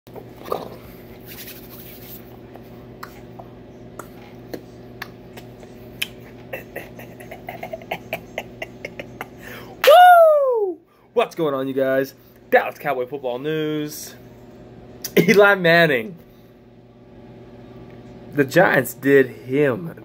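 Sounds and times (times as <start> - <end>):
low steady hum: 0.1 - 20.0.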